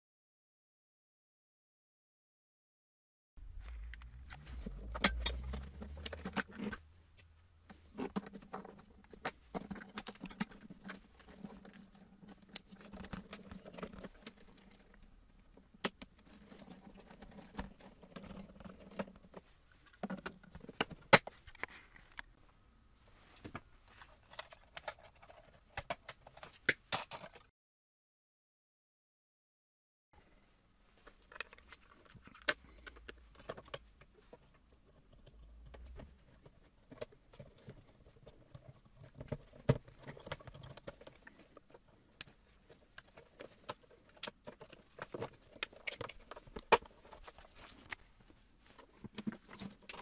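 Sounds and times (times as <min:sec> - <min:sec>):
small parts and tools clicking: 0:03.6 - 0:22.4, 0:23.9 - 0:27.5, 0:31.0 - 0:48.2.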